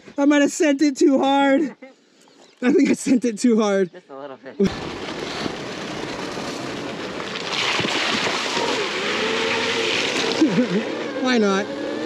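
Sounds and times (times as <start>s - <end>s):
wind and tyre noise: 4.7s - 12.0s
electric motor whine: 8.4s - 12.0s.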